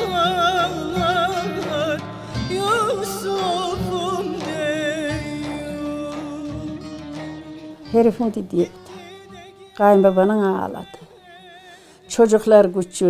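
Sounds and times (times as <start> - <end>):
person singing ornamented melody: 0.0 - 12.6.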